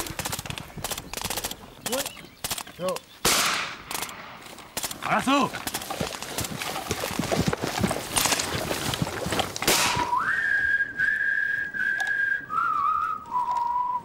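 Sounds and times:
rustling clatter through brush: 0.0s - 11.0s
person whistling a slow tune: 10.0s - 14.0s.

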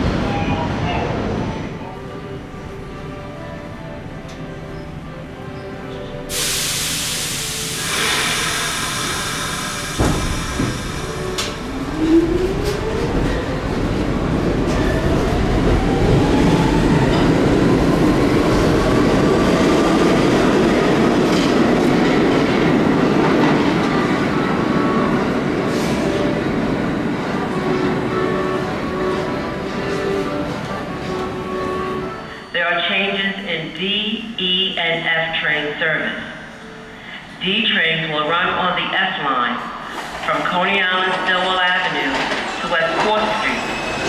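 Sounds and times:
train wheels rumbling: 6.3s - 32.2s.

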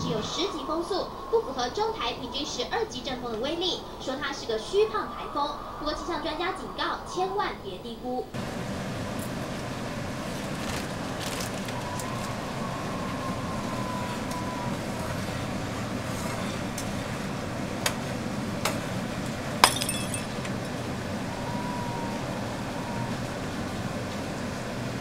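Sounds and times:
low rushing noise: 0.0s - 19.6s, 20.4s - 25.0s.

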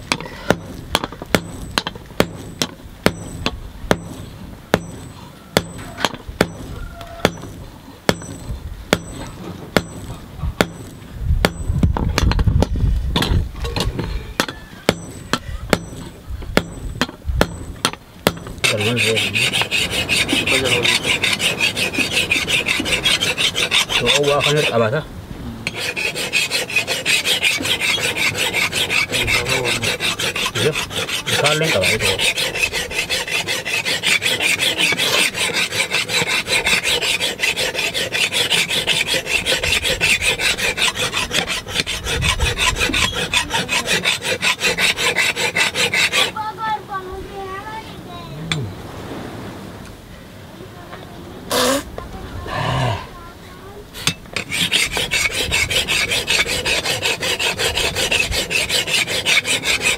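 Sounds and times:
hand file scraping metal: 0.0s - 7.6s, 8.2s - 25.0s, 25.6s - 46.4s, 54.0s - 59.9s
sharp knocks: 0.0s - 18.7s.

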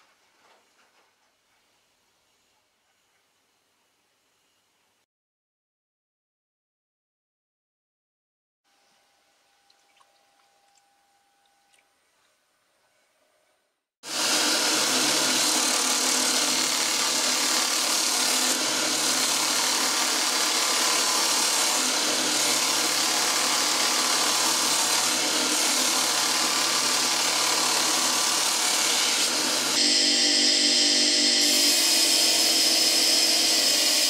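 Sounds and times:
belt grinder grinding steel blade: 14.1s - 34.0s.

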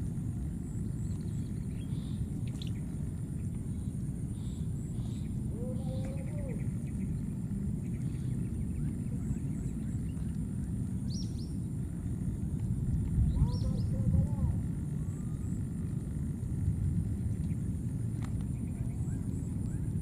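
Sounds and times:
low outdoor rumble: 0.0s - 20.0s
faint high bird chirps: 4.4s - 10.2s, 13.2s - 14.4s.

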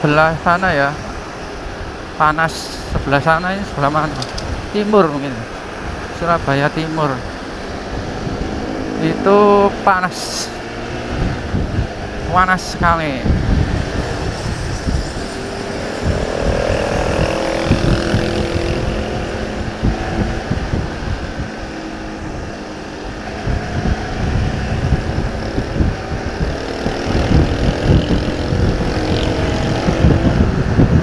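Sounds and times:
wind buffeting microphone: 0.0s - 31.0s
motorcycle engine running: 13.1s - 31.0s.

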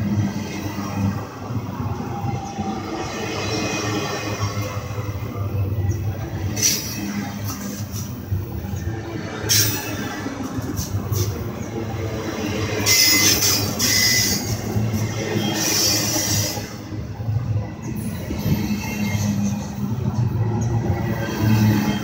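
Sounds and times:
train wheels rumbling on rails: 0.0s - 22.0s
high wheel squeal: 12.6s - 16.9s.

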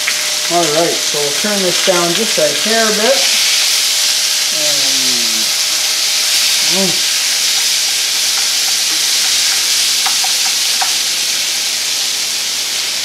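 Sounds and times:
meat sizzling in oil: 0.0s - 13.0s
wooden spoon stirring: 8.2s - 11.0s.

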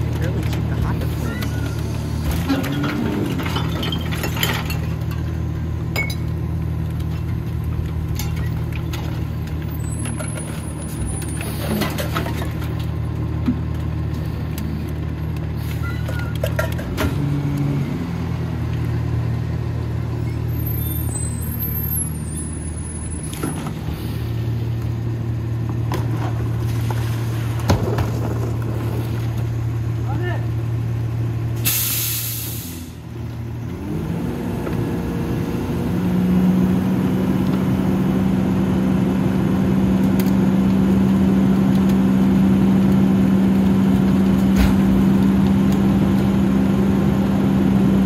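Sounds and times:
trash and cans knocking and rattling: 2.2s - 5.4s, 11.3s - 13.8s, 16.0s - 17.1s.

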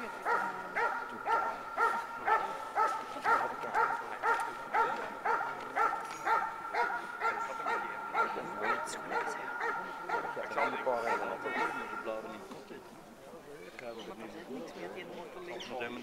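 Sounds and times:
dog barking: 0.0s - 12.2s.

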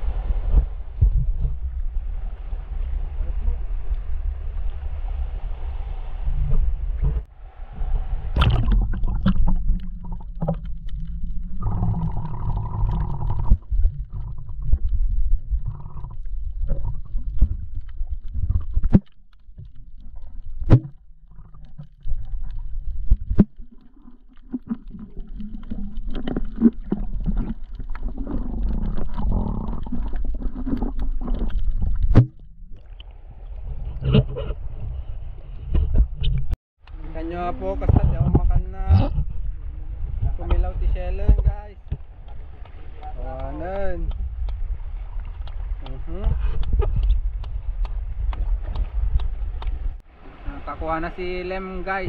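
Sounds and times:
underwater water rumble: 0.0s - 52.0s
water bubbling: 6.5s - 34.9s, 37.2s - 50.4s.

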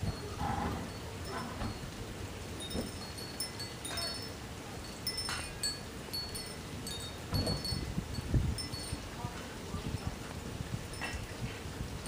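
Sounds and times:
high-pitched chimes tinkling: 2.6s - 9.3s.

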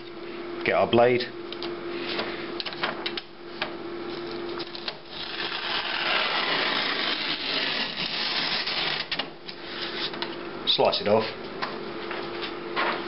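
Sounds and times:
knife slicing paper: 5.1s - 9.1s.

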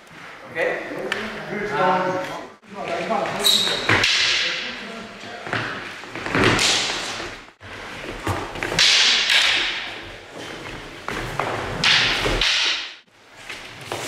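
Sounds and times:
sticks striking: 3.9s - 4.8s, 8.6s - 10.0s, 11.7s - 13.0s.

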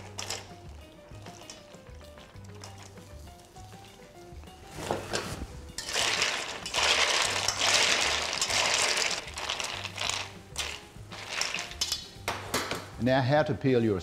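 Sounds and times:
ice cubes clinking in steel bowl: 0.0s - 3.2s, 5.8s - 12.3s.

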